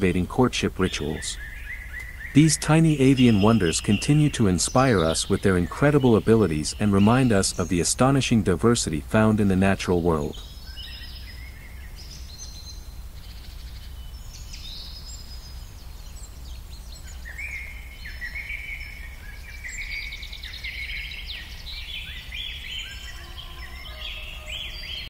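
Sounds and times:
low outdoor rumble: 0.0 - 10.6
small birds singing: 0.0 - 25.0.

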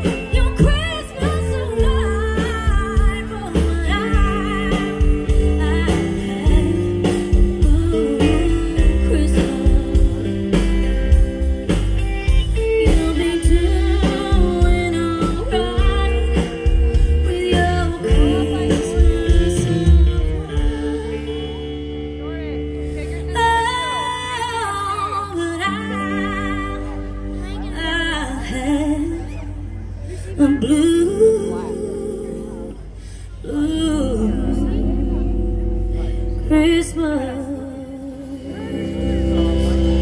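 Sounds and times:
person singing: 0.0 - 11.0, 12.0 - 22.0
drums with steady beat: 0.0 - 22.2
bass guitar: 0.0 - 40.0
electric guitar: 0.0 - 40.0.

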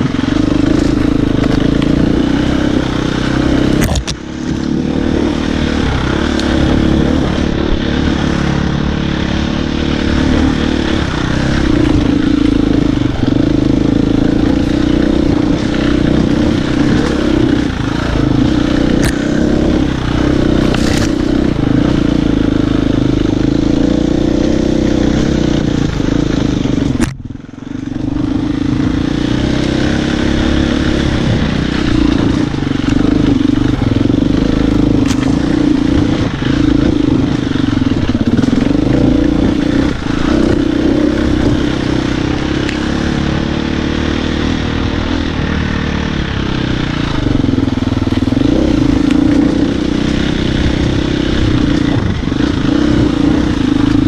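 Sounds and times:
motorcycle engine running under load: 0.0 - 54.0.

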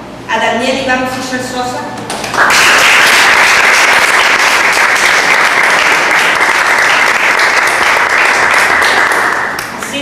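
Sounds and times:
audience applauding: 2.1 - 9.9.

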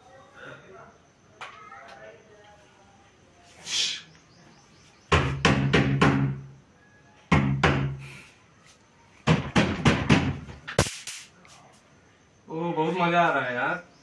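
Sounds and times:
electric mosquito racket zapping: 10.7 - 11.4.

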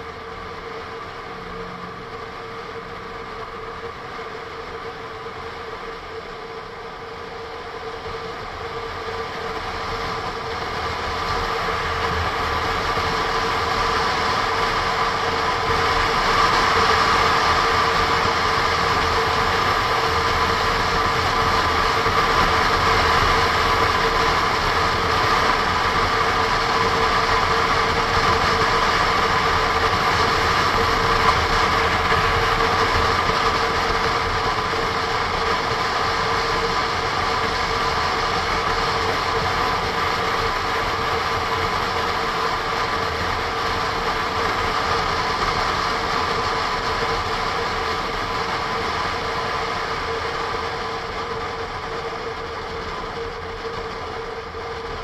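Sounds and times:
motorcycle engine running: 0.0 - 55.0
wind rush on microphone: 0.0 - 55.0.

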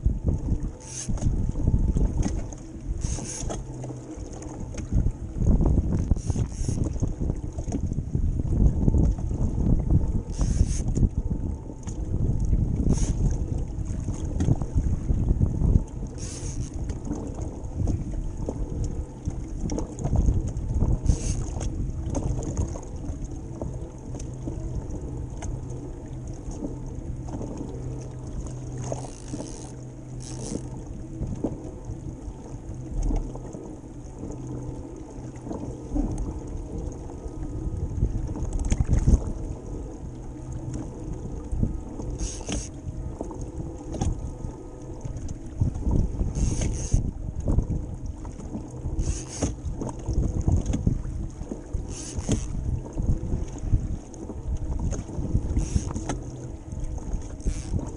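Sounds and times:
water slapping against kayak hull: 0.0 - 57.9
wind buffeting microphone: 0.0 - 57.9.

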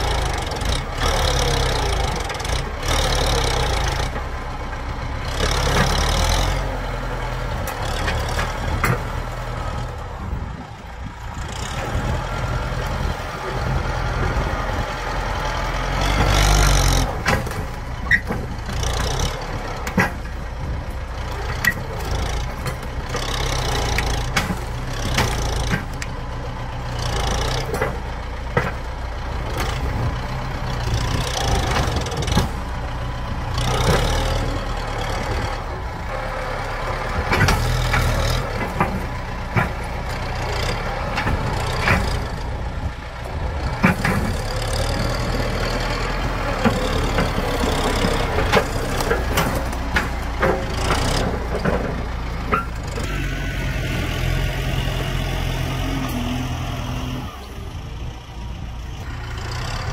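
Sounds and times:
tractor engine under load: 0.0 - 59.9
soil and roots scraping and cracking: 43.2 - 57.4.

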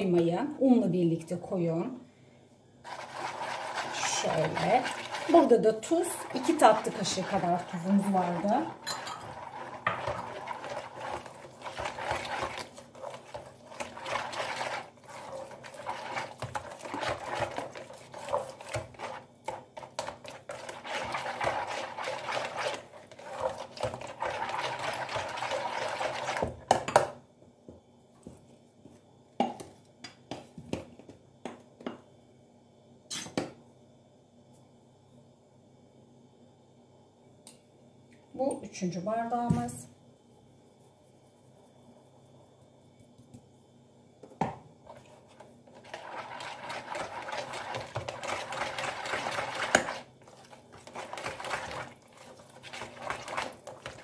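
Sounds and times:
wire whisk scraping a tub: 2.9 - 26.4, 45.7 - 54.0.

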